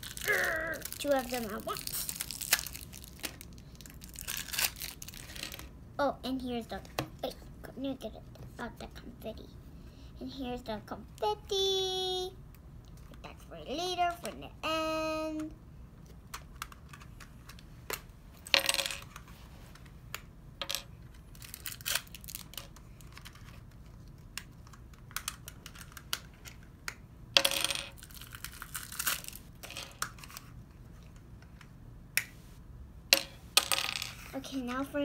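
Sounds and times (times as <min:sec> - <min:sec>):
plastic wrapper crinkling: 0:00.0 - 0:05.6, 0:21.3 - 0:22.7, 0:28.0 - 0:29.5.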